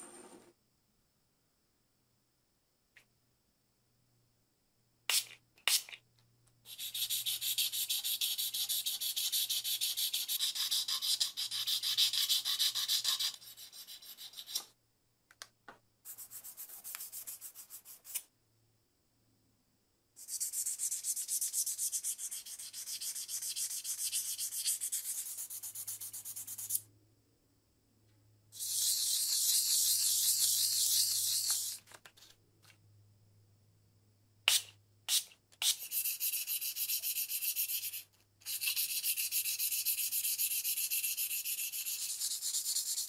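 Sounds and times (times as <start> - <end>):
sponge sanding metal: 6.7 - 14.6.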